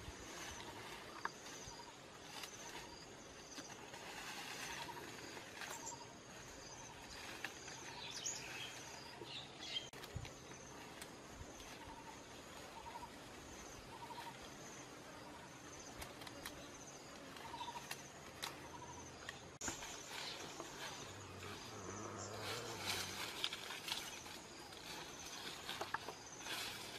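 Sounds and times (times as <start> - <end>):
leaves and twigs clicking: 9.9 - 12.0, 15.9 - 26.9.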